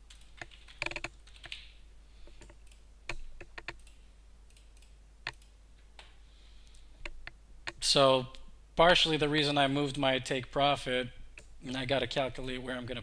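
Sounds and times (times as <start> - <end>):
keyboard typing: 0.1 - 1.7, 2.3 - 5.5.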